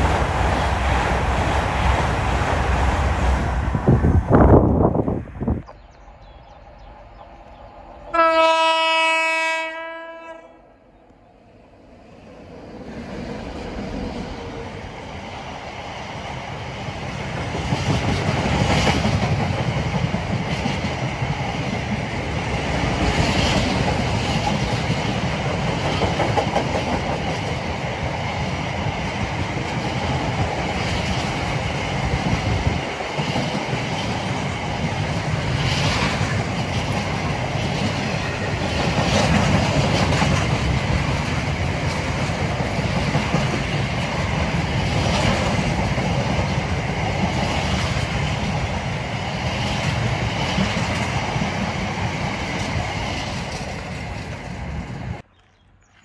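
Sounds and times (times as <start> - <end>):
train rumble and clatter: 0.0 - 10.2, 12.1 - 55.2
train horn: 8.1 - 10.8.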